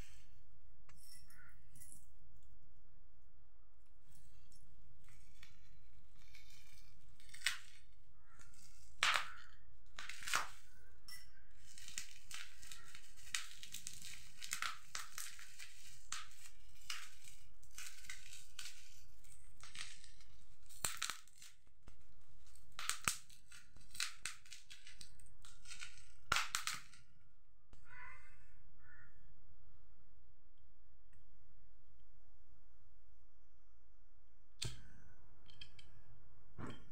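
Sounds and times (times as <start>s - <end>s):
bubble wrap crinkling and crackling: 4.2s - 27.1s.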